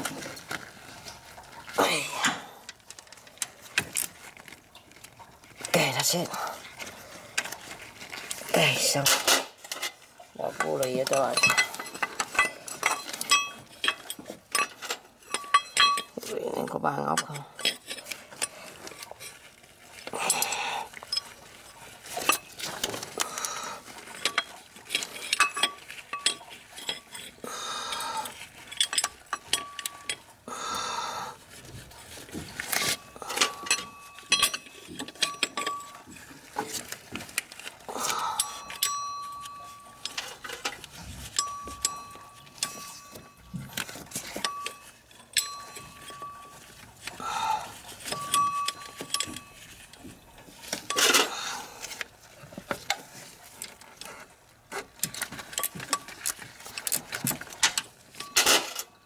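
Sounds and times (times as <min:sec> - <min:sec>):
gloved hands rustling: 0:00.0 - 0:16.7
metal tools clinking: 0:03.6 - 0:59.0.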